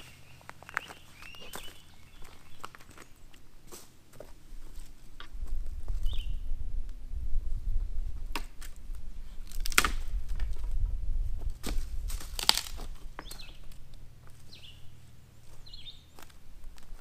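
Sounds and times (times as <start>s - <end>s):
bird chirping: 0.0s - 3.4s, 6.0s - 6.6s, 13.2s - 16.3s
footsteps on dry leaves: 0.0s - 6.0s, 11.3s - 17.0s
wind buffeting microphone: 4.5s - 14.0s.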